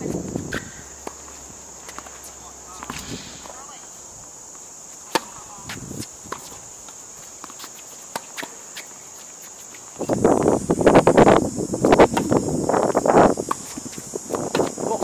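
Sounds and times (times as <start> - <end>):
high insect buzz: 0.0 - 15.0
tennis ball struck by racquets: 5.0 - 5.7.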